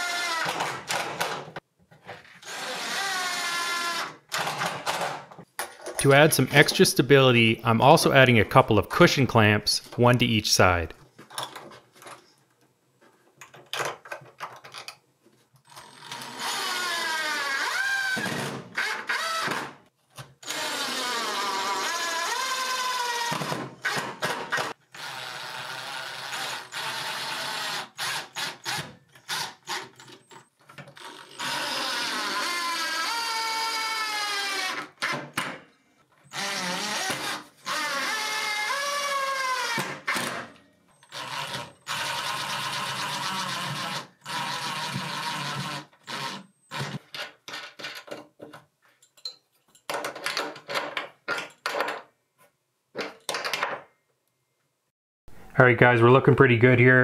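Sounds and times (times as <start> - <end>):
drill driving screws into wood: 0.0 - 1.5, 2.4 - 5.2, 15.7 - 35.6, 36.3 - 47.9.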